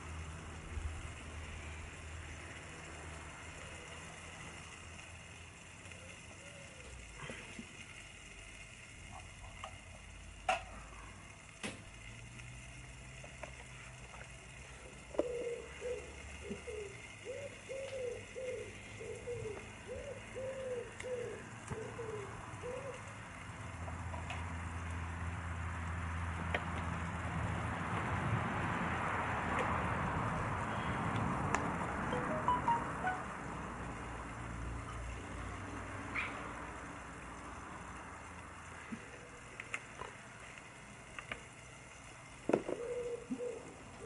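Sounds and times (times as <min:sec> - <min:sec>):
hiss: 0:00.0 - 0:23.6
pigeon cooing: 0:06.0 - 0:07.0, 0:15.1 - 0:23.0, 0:42.6 - 0:44.0.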